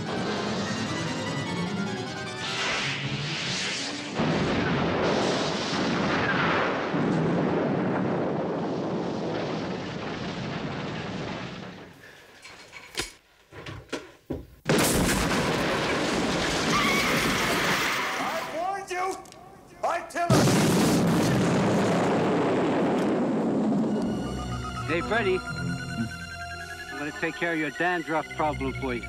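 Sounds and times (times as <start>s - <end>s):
explosion with flying debris: 2.4s - 12.2s, 14.6s - 18.5s, 20.3s - 24.0s.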